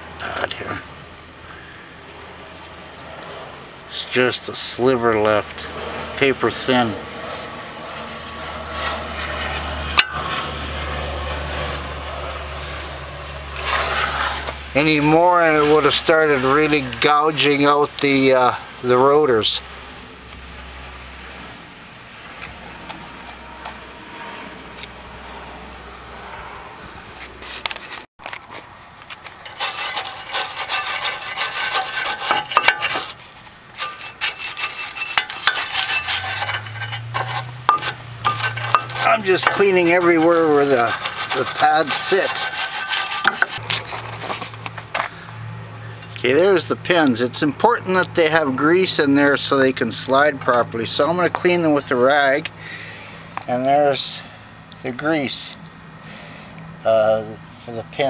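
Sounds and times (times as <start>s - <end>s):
hand brush scrubbing metal: 29.3s - 44.9s.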